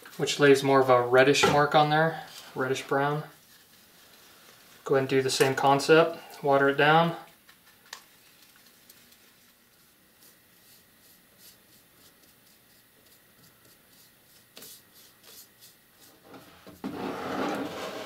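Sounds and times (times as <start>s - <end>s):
paintbrush scrubbing on antler: 9.4s - 16.4s.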